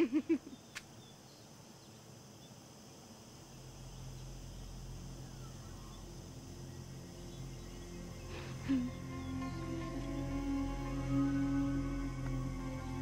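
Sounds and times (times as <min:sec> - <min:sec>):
steady high hum: 0:00.0 - 0:13.0
low sustained orchestral notes: 0:03.4 - 0:13.0.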